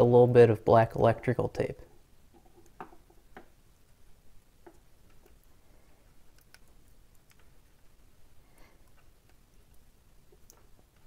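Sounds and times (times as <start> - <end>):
tape and wire clicks and crackles: 2.3 - 3.6, 4.6 - 8.0, 8.6 - 11.0.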